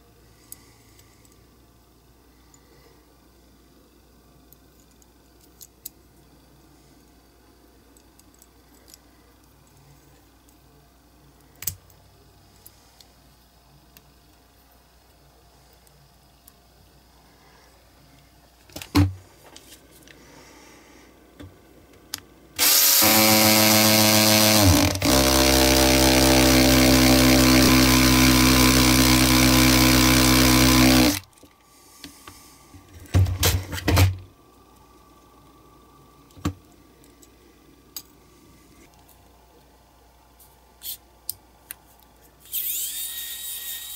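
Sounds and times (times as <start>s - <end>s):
cordless drill hammering: 22.6s - 31.2s.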